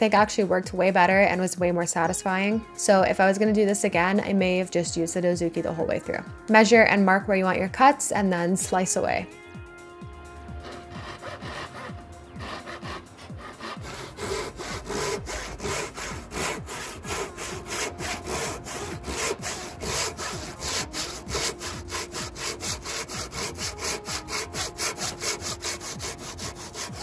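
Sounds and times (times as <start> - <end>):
hand saw cutting wood: 10.6 - 27.0.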